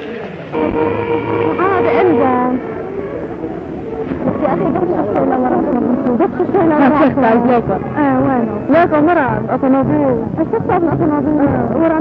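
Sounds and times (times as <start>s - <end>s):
crowd shouting and chanting: 0.6s - 4.3s.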